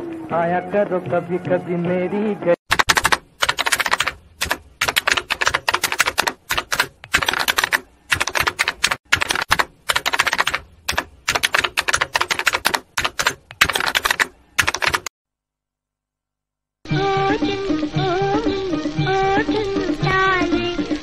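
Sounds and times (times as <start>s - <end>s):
typewriter keystroke clicks: 2.7s - 15.1s.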